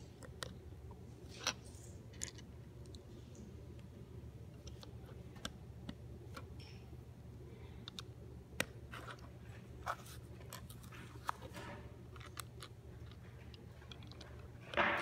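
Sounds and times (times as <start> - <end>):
plastic bricks clicking: 12.1 - 14.4.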